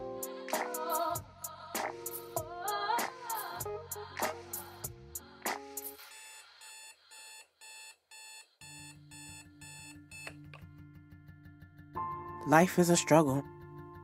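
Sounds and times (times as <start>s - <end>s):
alarm clock beeping: 6.0s - 10.5s.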